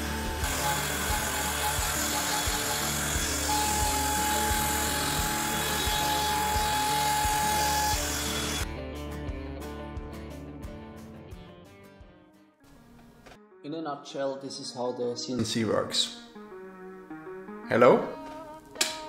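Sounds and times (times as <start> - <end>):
router spindle whine: 0.0 - 8.6
router bit carving wood: 0.0 - 8.7
background music: 0.0 - 19.0.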